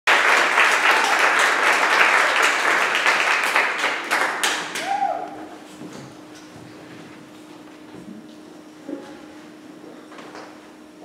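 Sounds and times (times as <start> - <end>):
congregation applauding: 0.1 - 5.5.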